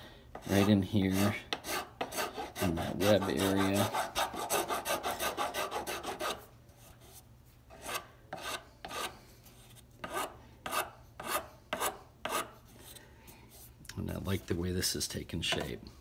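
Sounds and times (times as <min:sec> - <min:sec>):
hand file rasping on wood: 0:00.4 - 0:06.4, 0:07.0 - 0:09.1, 0:10.0 - 0:12.5.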